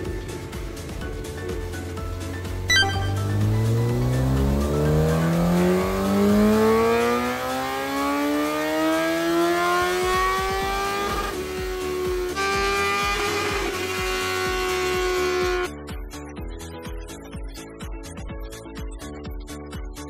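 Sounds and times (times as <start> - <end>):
motorcycle engine revving: 3.4 - 15.7.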